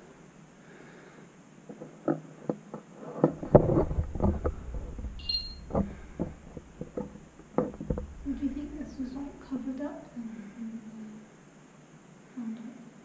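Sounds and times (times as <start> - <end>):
footsteps and knocks: 1.7 - 9.3
camera handling rumble: 3.2 - 8.3.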